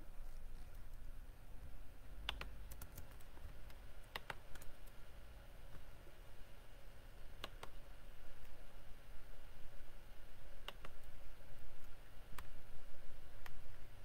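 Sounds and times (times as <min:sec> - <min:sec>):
keyboard keys clicking: 0:02.3 - 0:05.0.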